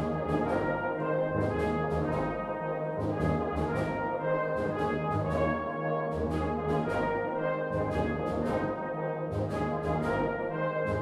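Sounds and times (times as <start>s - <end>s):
brass band playing: 0.0s - 11.0s.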